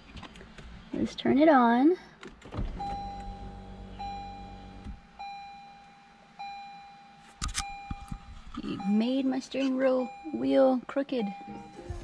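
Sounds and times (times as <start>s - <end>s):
low mechanical hum: 0.0s - 12.0s
car cabin chime: 2.6s - 12.0s.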